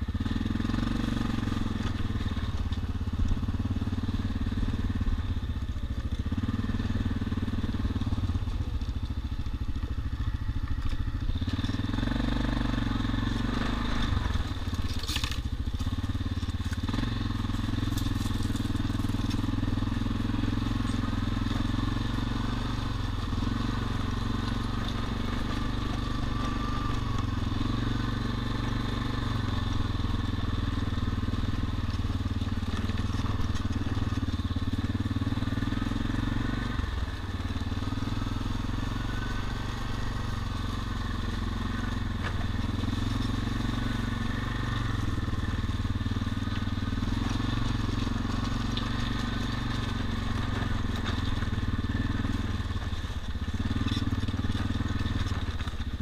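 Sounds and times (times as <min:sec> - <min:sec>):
atv engine running: 0:00.0 - 0:56.0
tyres crunching on gravel: 0:00.0 - 0:56.0.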